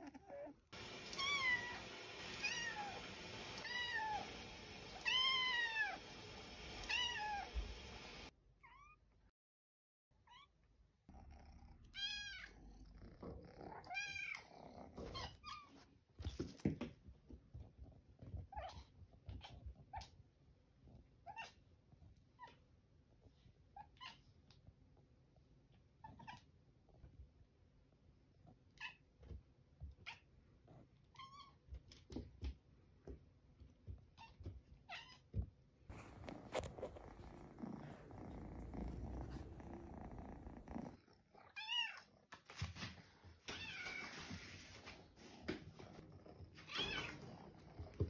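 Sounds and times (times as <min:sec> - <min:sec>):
cat meowing: 0:01.1 - 0:03.0.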